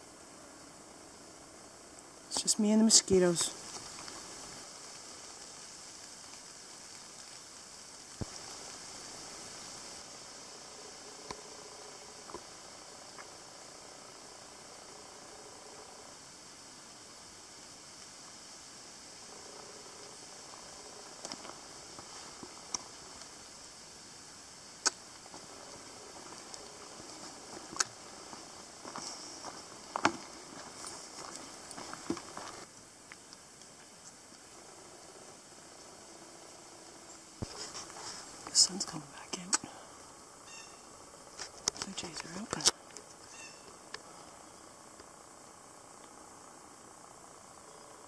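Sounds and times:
faint high-pitched hiss: 0.0 - 48.0
sharp isolated clicks: 24.8 - 25.0.

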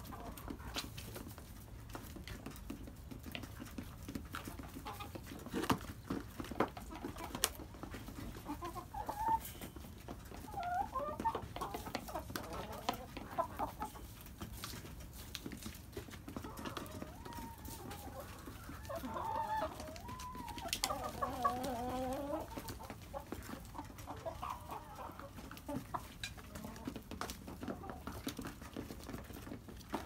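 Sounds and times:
hens calling: 10.3 - 13.9, 16.3 - 28.3.

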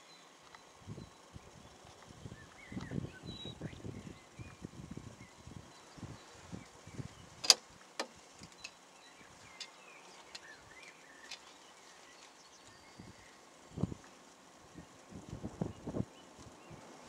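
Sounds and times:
faint outdoor background: 0.0 - 17.0
faint ticks: 0.4 - 0.7, 7.4 - 17.0
sharp clicks: 7.4 - 8.8.

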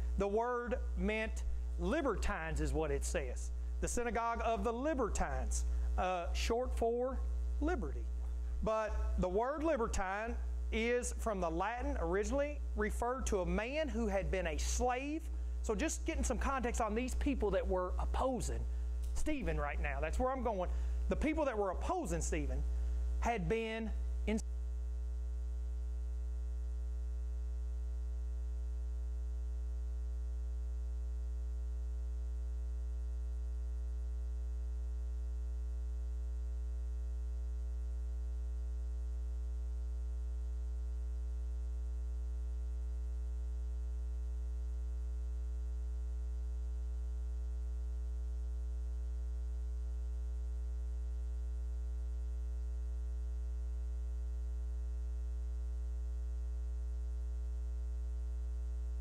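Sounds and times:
electrical mains hum: 0.0 - 59.0.

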